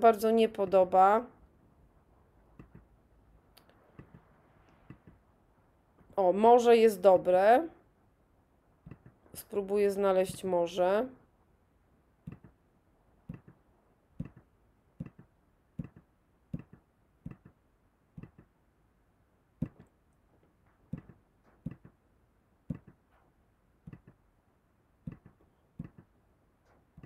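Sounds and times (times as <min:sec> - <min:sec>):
computer mouse clicking: 0:02.6 - 0:02.9, 0:03.6 - 0:05.2, 0:12.2 - 0:12.6, 0:13.3 - 0:13.6, 0:14.2 - 0:17.6, 0:18.2 - 0:18.5, 0:23.8 - 0:24.2, 0:25.0 - 0:26.1.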